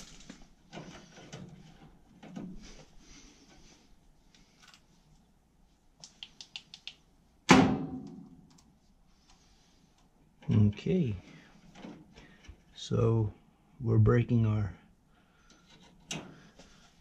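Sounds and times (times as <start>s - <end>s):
small clicks: 6.0s - 7.0s.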